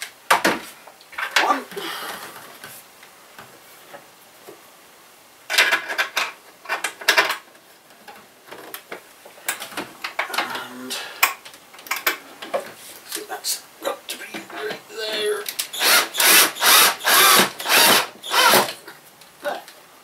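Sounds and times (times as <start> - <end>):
screwdriver rasping: 15.7 - 18.7.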